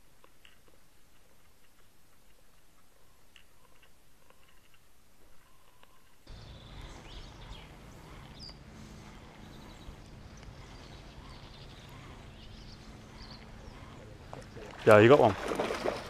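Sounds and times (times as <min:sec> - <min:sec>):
faint bird chirps: 0:02.8 - 0:14.7.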